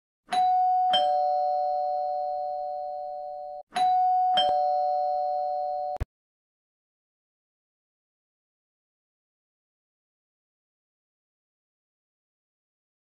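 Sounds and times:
two-note ding-dong chime: 3.8s - 6.0s.

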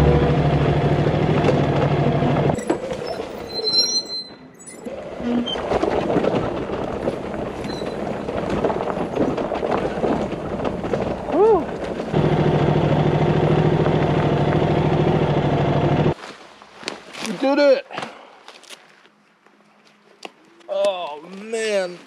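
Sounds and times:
motorcycle rattling on ruts: 5.6s - 15.5s
motorcycle engine running: 12.1s - 16.2s.

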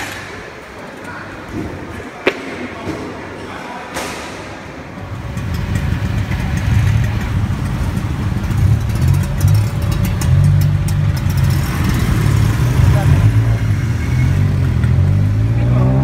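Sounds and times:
engine low rumble: 5.0s - 16.0s.

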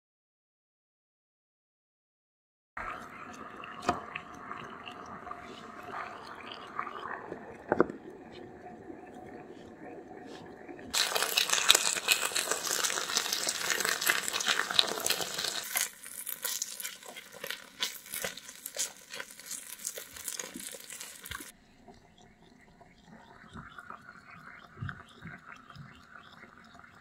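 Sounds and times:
food sizzling on hot plate: 10.9s - 21.5s.

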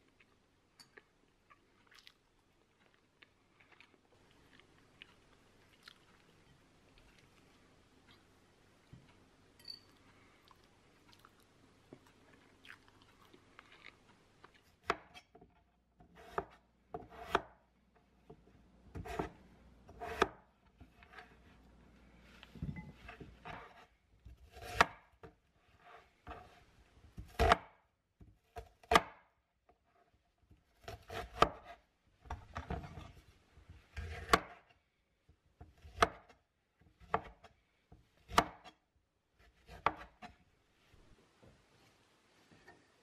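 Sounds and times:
knife chopping on wooden board: 14.8s - 15.3s, 16.0s - 17.6s, 18.3s - 20.4s, 22.6s - 25.0s, 27.2s - 27.7s, 28.6s - 29.2s, 30.8s - 31.7s, 34.0s - 34.6s, 35.7s - 36.3s, 37.0s - 37.5s, 38.2s - 38.7s, 39.5s - 40.3s
soft handling sounds: 20.6s - 24.4s.

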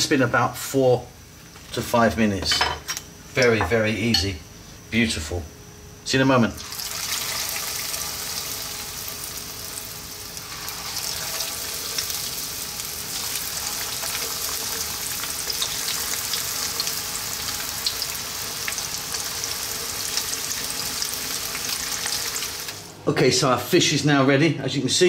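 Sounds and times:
fish deep-frying in oil: 6.6s - 23.0s.

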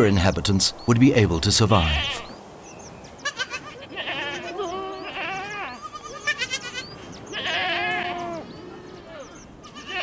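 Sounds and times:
sheep and goats bleating: 1.8s - 2.3s, 3.2s - 10.0s.

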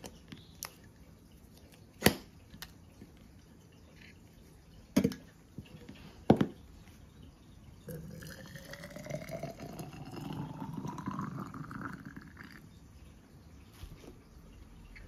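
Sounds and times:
water pouring into glass bottle: 0.1s - 13.6s.

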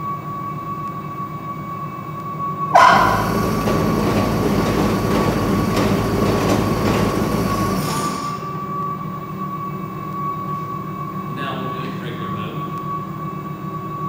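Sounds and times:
snowblower auger whirring: 3.0s - 8.3s.

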